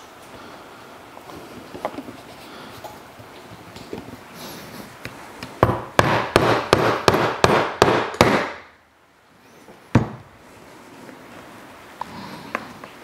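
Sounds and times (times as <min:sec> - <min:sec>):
mallet striking leather punch: 0:05.6 - 0:08.7.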